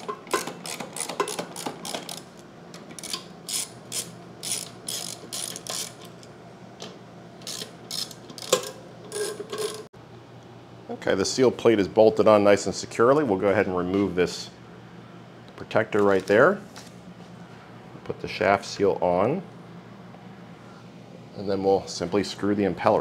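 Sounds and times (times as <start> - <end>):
socket ratchet clicking: 3.0 - 6.1.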